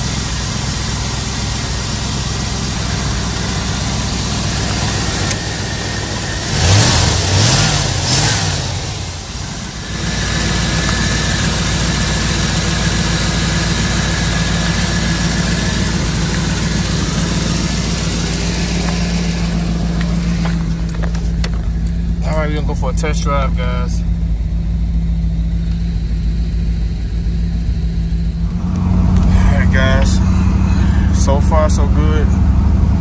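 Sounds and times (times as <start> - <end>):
car engine idling: 0.0 - 33.0
car engine revving: 0.0 - 33.0.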